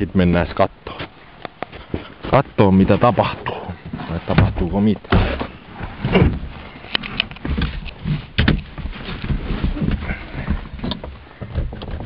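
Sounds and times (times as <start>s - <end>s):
knocks and clicks in a car: 9.7s - 12.0s.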